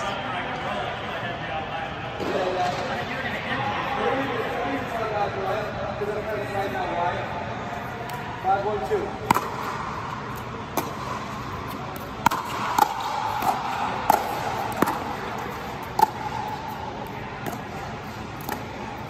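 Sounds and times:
paddles striking plastic ball: 0:09.2 - 0:16.5.

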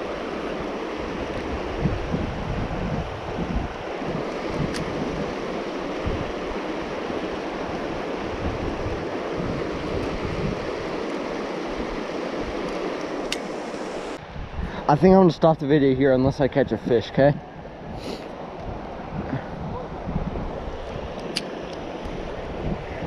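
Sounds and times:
wind buffeting microphone: 0:01.0 - 0:23.0
river rushing over rocks: 0:03.2 - 0:14.2.

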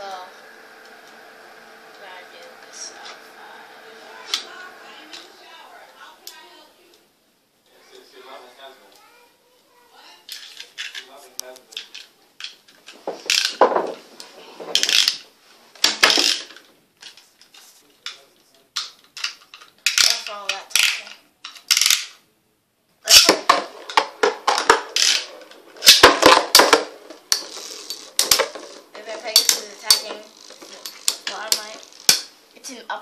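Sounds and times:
spinning hiss: 0:00.0 - 0:06.6
spinning tops clashing: 0:23.1 - 0:32.4.

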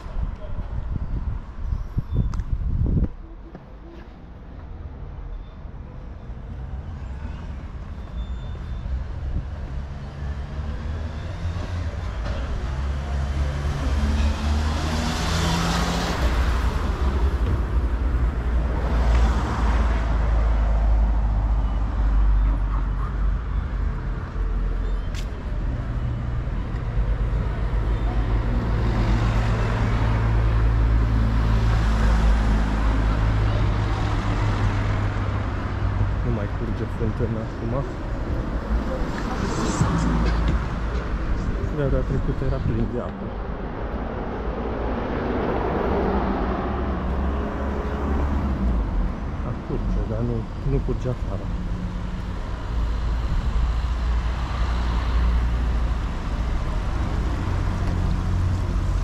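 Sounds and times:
vehicles swishing past: 0:00.0 - 0:59.0.

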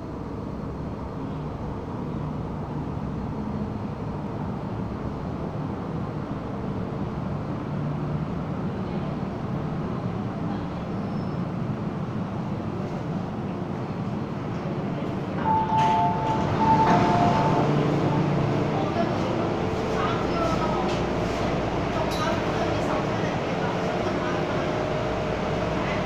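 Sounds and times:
train rumble with low hum: 0:00.0 - 0:26.0.

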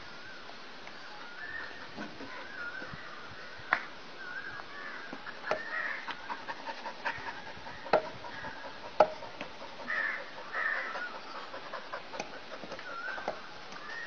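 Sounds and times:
birds chirping and calling: 0:00.9 - 0:14.0.

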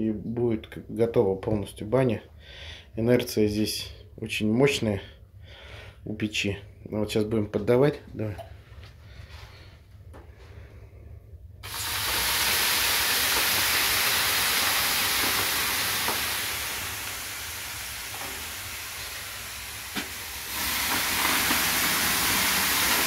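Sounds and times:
steam hissing on hot stones: 0:11.6 - 0:23.0.

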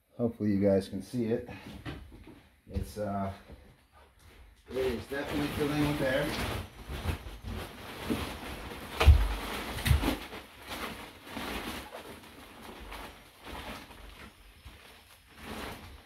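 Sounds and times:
plastic wrapping crinkling: 0:04.7 - 0:16.0
dull thumps of mattress: 0:08.9 - 0:10.3.

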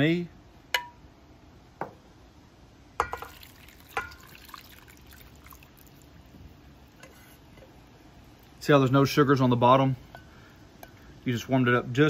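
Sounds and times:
marinade pouring onto meat: 0:03.2 - 0:07.0.

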